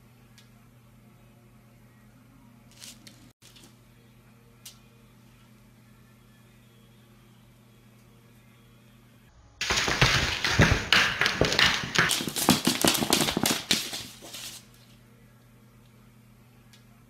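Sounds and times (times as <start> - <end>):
claws scratching on a wooden floor: 9.6 - 14.8.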